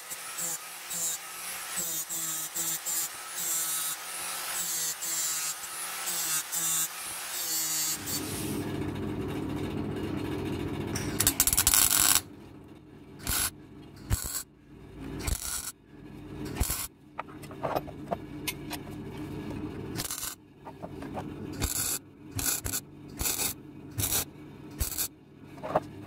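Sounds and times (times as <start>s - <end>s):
power tool grinding metal: 0.0s - 8.6s, 13.2s - 13.5s, 21.6s - 24.2s, 24.8s - 25.1s
light scrapes and knocks: 25.5s - 26.0s.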